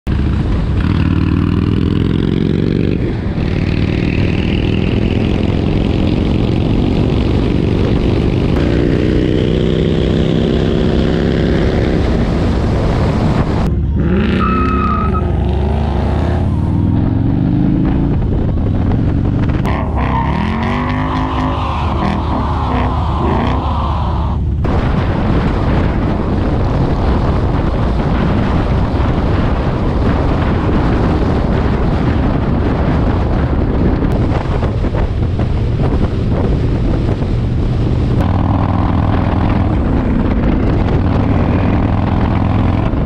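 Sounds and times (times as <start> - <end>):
motorcycle engine running: 0.0 - 14.0, 15.7 - 20.1, 24.5 - 43.0
wind noise: 0.1 - 43.0
car engine revving: 0.6 - 25.0.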